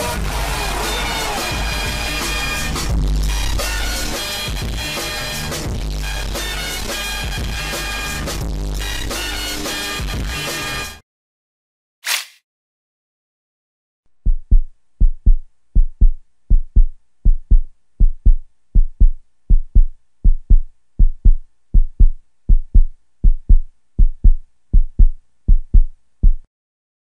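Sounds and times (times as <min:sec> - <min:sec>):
heartbeat thumps: 0:14.2 - 0:26.5.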